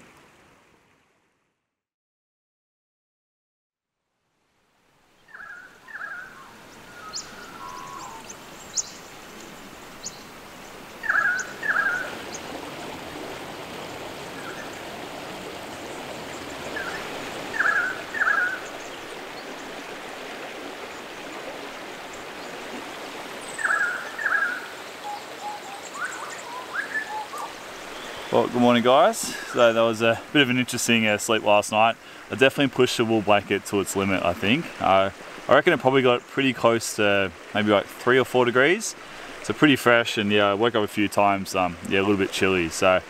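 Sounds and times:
river rushing over rapids: 6.4s - 35.8s.

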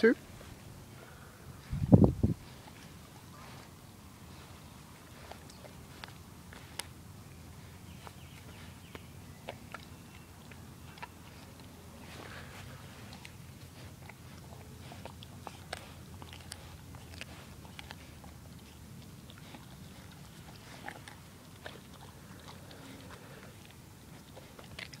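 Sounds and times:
dog chewing on meat: 0.3s - 25.0s.

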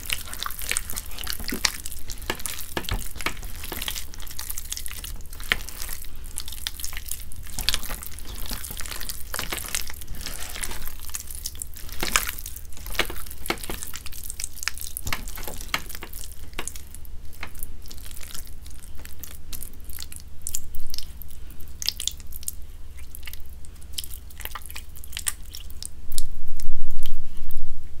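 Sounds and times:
hands kneading wet paste: 0.0s - 26.3s.

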